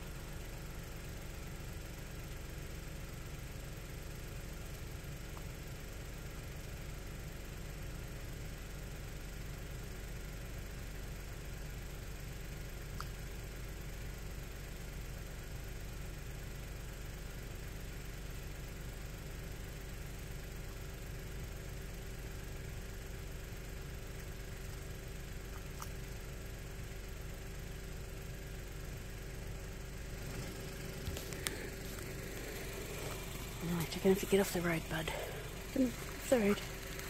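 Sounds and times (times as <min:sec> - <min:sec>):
car engine idling: 0:00.0 - 0:37.0
faint clicks: 0:12.9 - 0:13.2, 0:25.5 - 0:26.0.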